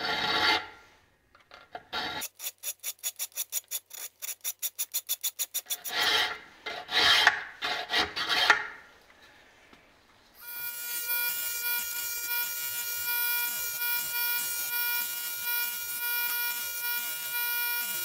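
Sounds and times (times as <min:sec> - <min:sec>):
file rasping on steel: 0:00.0 - 0:00.8, 0:01.9 - 0:08.7
bench grinder whine: 0:10.4 - 0:18.0.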